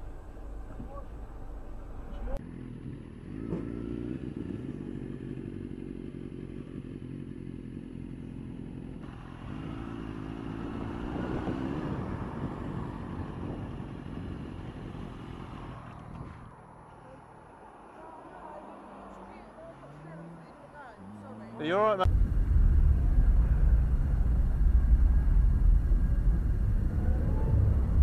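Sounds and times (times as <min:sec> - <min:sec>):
motorcycle engine accelerating: 0:02.1 - 0:16.6, 0:21.0 - 0:28.0.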